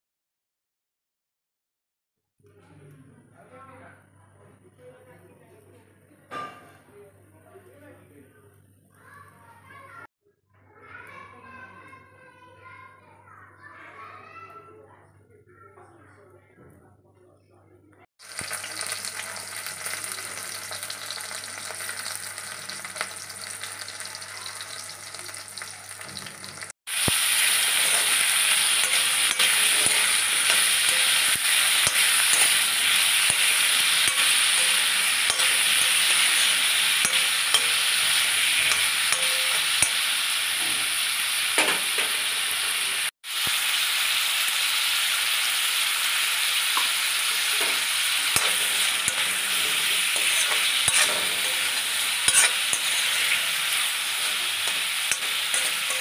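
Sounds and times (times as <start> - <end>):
vegetables sizzling in hot oil: 18.2 - 56.0
spatula stirring and scraping: 27.0 - 40.8, 46.8 - 56.0.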